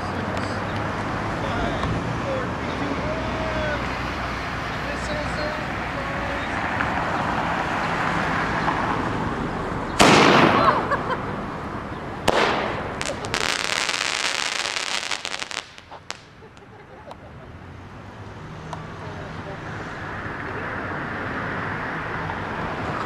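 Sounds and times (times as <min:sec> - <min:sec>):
firework shell pop: 0:10.0 - 0:10.6, 0:12.3 - 0:13.3
firework launch: 0:10.0 - 0:11.0, 0:12.2 - 0:16.4
firework fuse hissing: 0:12.3 - 0:16.3
crackling sparks: 0:12.3 - 0:16.7.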